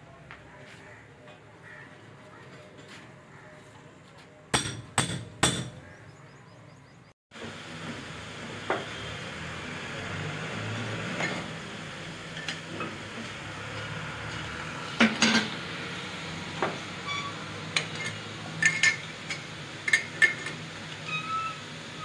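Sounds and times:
hammer striking metal: 0:04.5 - 0:05.8.

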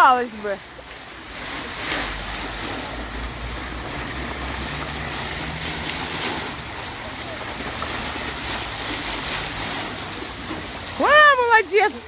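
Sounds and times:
fountain water jets splashing: 0:00.0 - 0:12.0.

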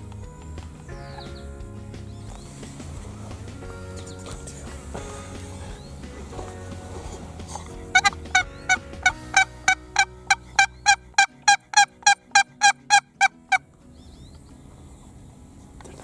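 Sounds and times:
turkey call yelping: 0:08.0 - 0:13.6.

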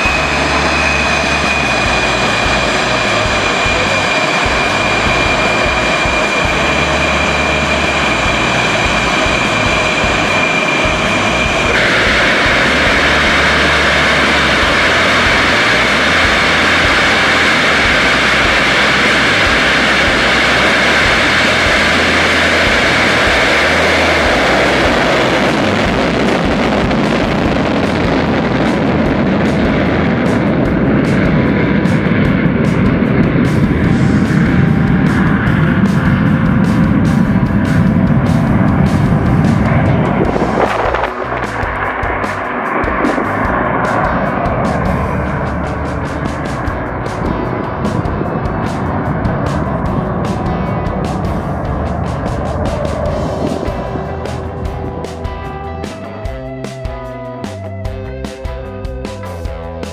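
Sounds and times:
jet afterburner roar: 0:00.0 - 0:59.9
jet engine whine: 0:00.0 - 0:59.9.

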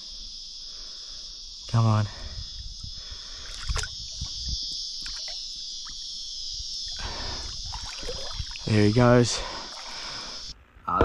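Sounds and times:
high-pitched insect chorus: 0:00.0 - 0:11.0
water splashing and sloshing: 0:03.4 - 0:06.1, 0:06.8 - 0:10.4.

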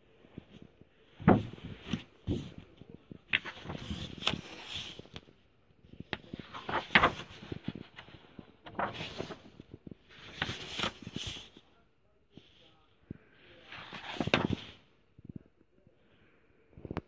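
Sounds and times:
paper pages rustling: 0:00.4 - 0:11.6, 0:13.6 - 0:14.8
book thumps: 0:01.2 - 0:02.6, 0:13.9 - 0:14.8.

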